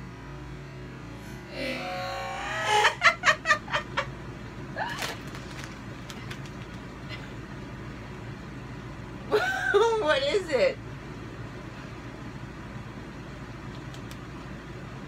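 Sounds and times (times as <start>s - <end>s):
low room hum: 0.0s - 15.0s
faint small clicks: 13.7s - 14.3s.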